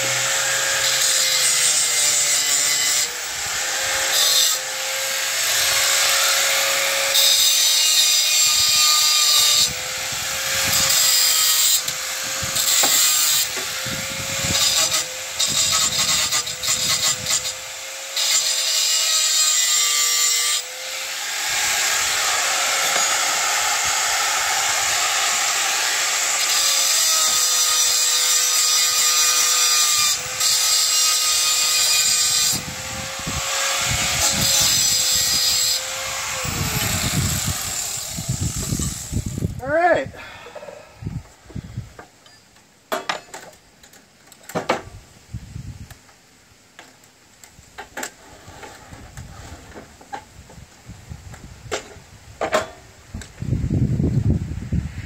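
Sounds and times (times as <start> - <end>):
power tool cutting wood: 0.0 - 39.6.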